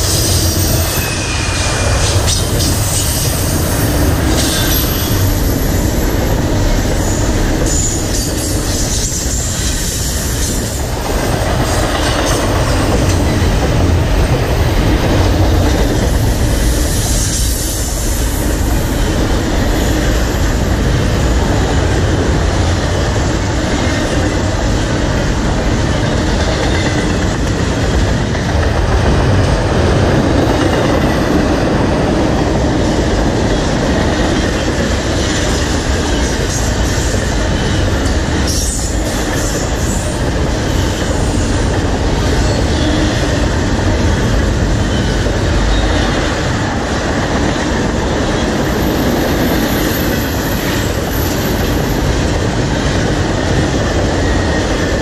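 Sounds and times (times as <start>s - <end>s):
high wheel squeals: 0.0s - 6.2s
freight train rumbling past: 0.0s - 55.0s.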